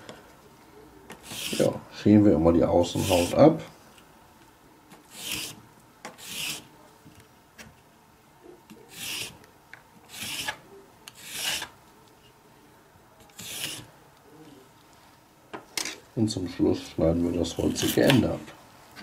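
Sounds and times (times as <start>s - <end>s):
vegetable peeler scraping: 1.1s - 1.8s, 2.9s - 3.4s, 5.1s - 5.6s, 6.2s - 6.7s, 8.9s - 9.4s, 10.1s - 11.8s, 13.3s - 13.9s.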